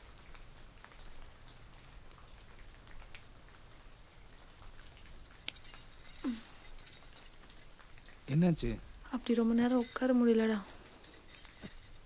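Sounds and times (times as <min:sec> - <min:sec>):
light rain pattering: 0:00.0 - 0:12.0
metallic jingling: 0:05.3 - 0:12.0.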